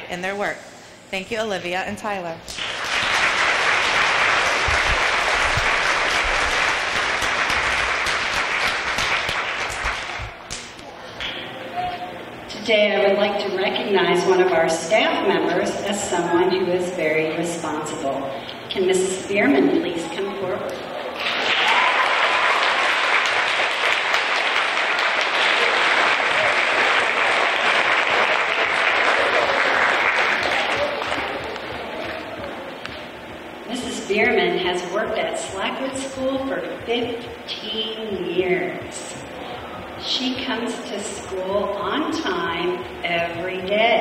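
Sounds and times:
audience applauding: 0:02.5 - 0:10.6, 0:21.2 - 0:33.0.

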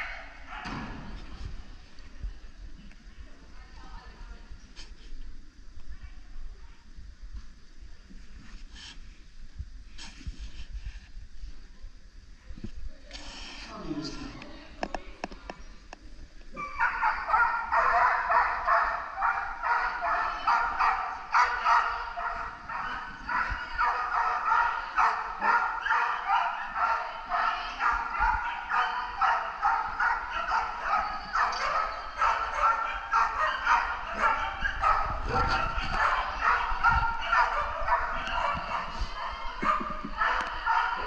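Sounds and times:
dog barking rapidly: 0:16.6 - 0:41.0.

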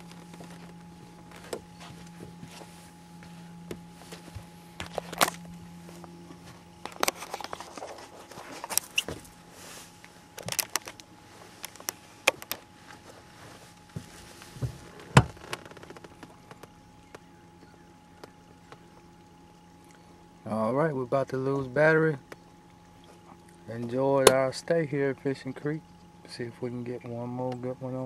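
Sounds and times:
footsteps on boat deck: 0:00.0 - 0:10.3, 0:12.6 - 0:16.7
low steady hum: 0:00.0 - 0:28.0.

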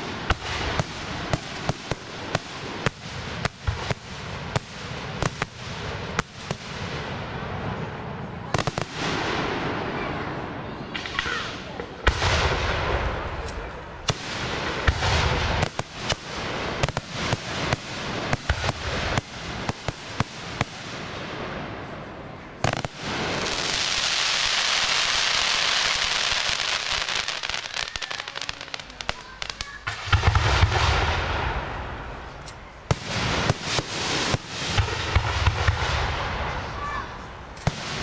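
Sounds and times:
firework cracks: 0:00.0 - 0:22.0, 0:22.6 - 0:38.0
firework bangs: 0:00.0 - 0:38.0
firework sizzling hiss: 0:22.6 - 0:35.8.

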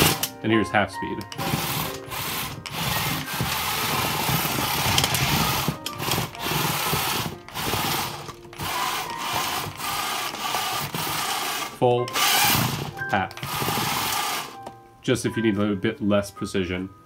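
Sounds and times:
wheels rolling on carpet: 0:01.4 - 0:11.4
electric motors whining: 0:01.4 - 0:14.6.

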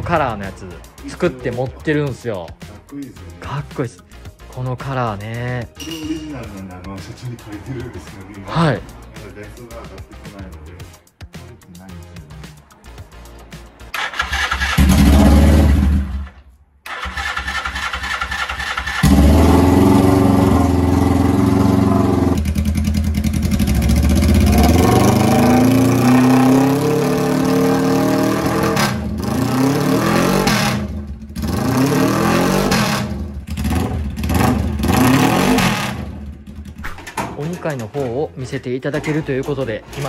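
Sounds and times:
motorcycle engine revving: 0:13.9 - 0:37.2
motorcycle engine starting: 0:13.9 - 0:38.0.

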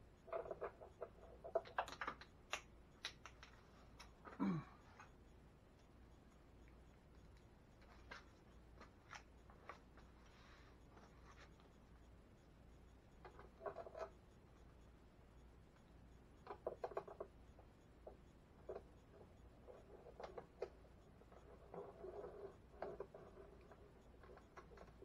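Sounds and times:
hands scratching and clicking wires: 0:00.2 - 0:04.4, 0:06.9 - 0:10.1.

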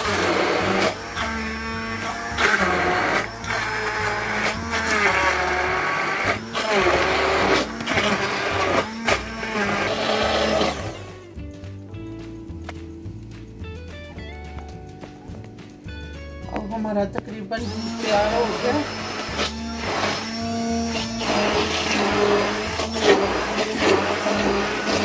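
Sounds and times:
hand blender whirring through fruit: 0:00.0 - 0:11.3, 0:17.6 - 0:25.0.

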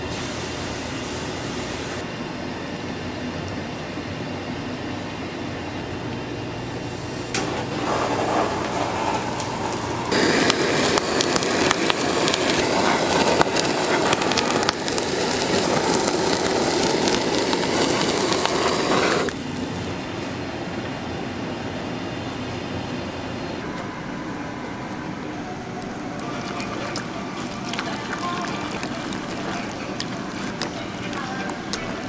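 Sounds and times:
steady background hum: 0:00.0 - 0:32.0
blowtorch roaring: 0:05.8 - 0:32.0
blowtorch ignition click: 0:07.3 - 0:19.4
crackling: 0:07.3 - 0:19.9, 0:23.6 - 0:32.0.

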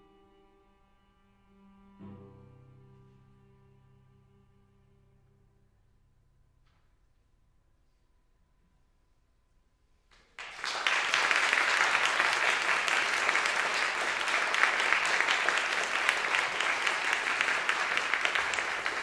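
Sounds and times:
audience applauding: 0:10.3 - 0:19.0.

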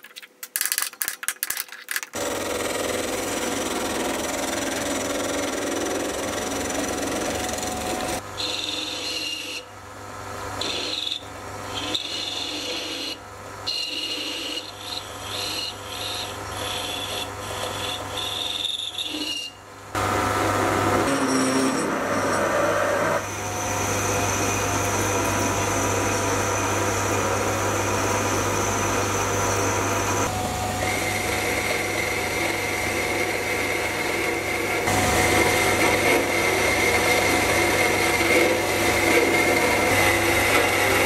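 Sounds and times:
turning tool cutting metal whine: 0:10.6 - 0:41.0
lathe motor hum: 0:21.8 - 0:41.0.

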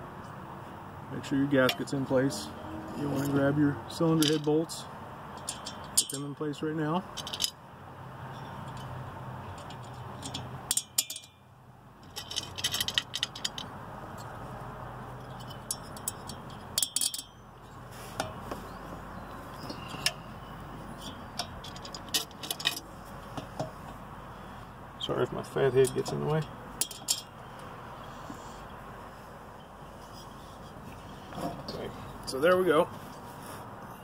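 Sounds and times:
metal bolts clinking: 0:04.0 - 0:04.7, 0:05.3 - 0:06.4, 0:07.1 - 0:07.6, 0:08.4 - 0:11.4, 0:12.0 - 0:14.3, 0:15.2 - 0:17.5, 0:20.9 - 0:23.8, 0:25.7 - 0:27.7.

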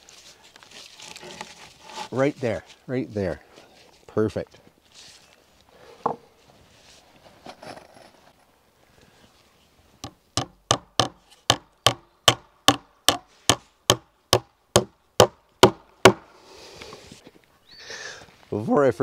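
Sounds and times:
hammer striking wood: 0:10.0 - 0:16.2.

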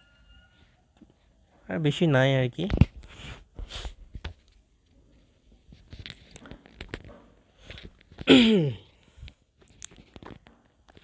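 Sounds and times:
faint clicks and rustles: 0:02.6 - 0:08.3, 0:09.0 - 0:11.0.

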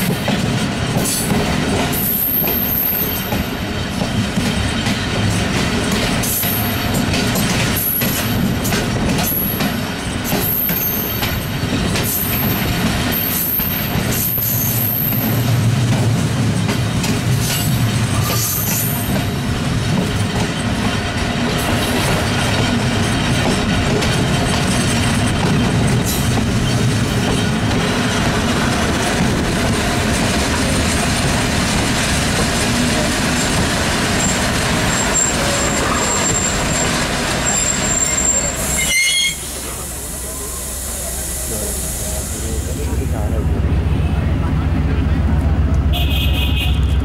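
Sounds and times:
train wheels rumbling: 0:00.0 - 0:47.0
thin high squeal: 0:35.0 - 0:39.5.

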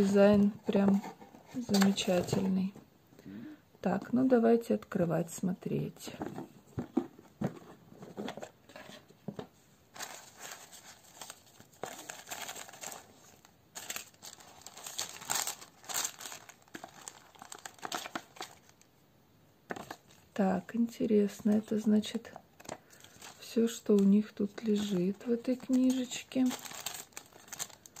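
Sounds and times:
tissue paper rustling: 0:09.9 - 0:18.7, 0:22.9 - 0:28.0.

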